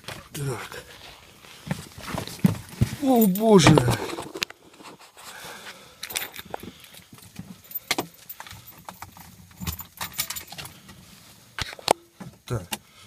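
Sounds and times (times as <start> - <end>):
keys jangling: 3.0 - 3.6.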